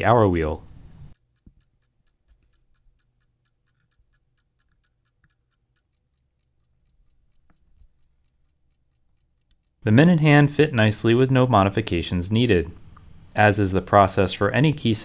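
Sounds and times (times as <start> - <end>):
pocket watch ticking: 0.2 - 11.8.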